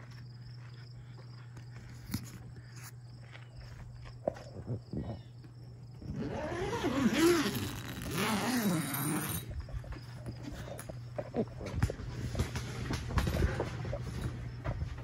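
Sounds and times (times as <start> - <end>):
steady low hum: 0.0 - 15.0
tent door zipper opening: 6.1 - 9.5.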